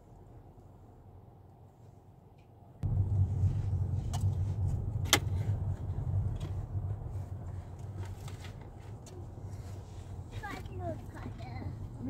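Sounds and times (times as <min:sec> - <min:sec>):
car road and engine rumble: 0:02.4 - 0:12.0.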